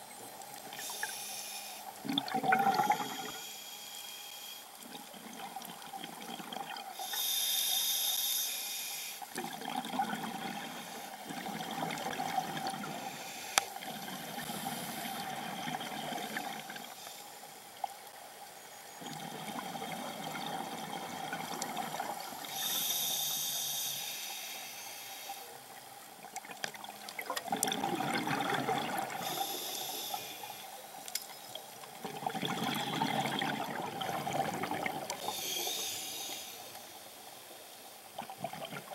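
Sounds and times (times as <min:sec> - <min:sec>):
hissing regulator inhalations: 0:00.7 - 0:02.0, 0:02.6 - 0:04.8, 0:07.0 - 0:09.3, 0:12.8 - 0:13.8, 0:22.4 - 0:25.6, 0:29.1 - 0:30.8, 0:35.2 - 0:37.4
gurgling exhaled bubbles: 0:02.0 - 0:03.4, 0:09.4 - 0:13.0, 0:13.8 - 0:16.8, 0:26.4 - 0:29.4, 0:32.0 - 0:35.3, 0:38.2 - 0:38.9.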